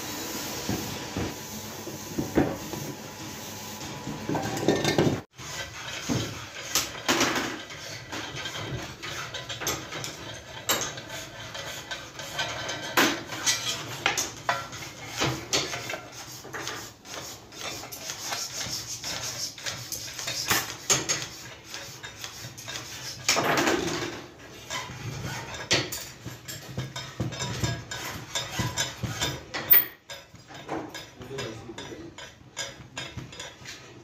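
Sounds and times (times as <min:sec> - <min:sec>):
metal scrape: 0:04.4 - 0:30.3
metal clinking and tapping: 0:28.5 - 0:33.7.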